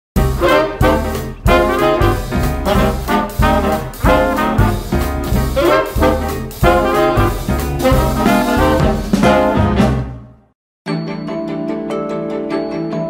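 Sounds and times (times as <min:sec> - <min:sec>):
upbeat background music: 0:00.2 - 0:10.3.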